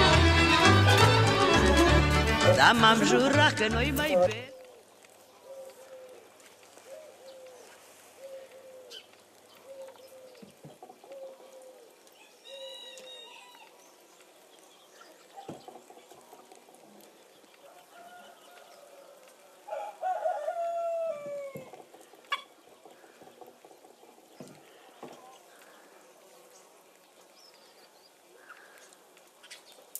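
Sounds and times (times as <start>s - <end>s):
rooster crowing: 12.5s - 13.7s, 17.6s - 21.7s
chickens clucking: 15.0s - 25.7s.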